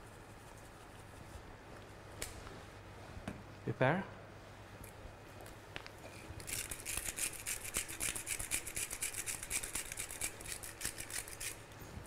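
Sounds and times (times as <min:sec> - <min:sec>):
pepper mill grinding: 0:06.4 - 0:11.6.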